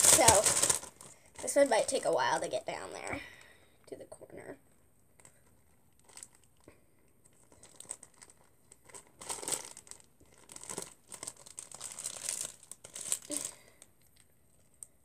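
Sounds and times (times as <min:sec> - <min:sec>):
plastic zip-lock bag crinkling: 0:00.0 - 0:02.6, 0:05.2 - 0:14.0.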